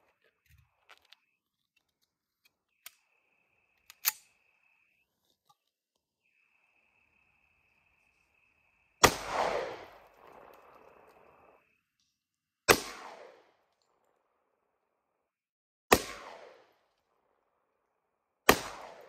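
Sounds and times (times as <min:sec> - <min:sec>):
pistol shot: 0:09.0 - 0:10.3, 0:12.7 - 0:13.5, 0:15.9 - 0:16.7, 0:18.5 - 0:19.0.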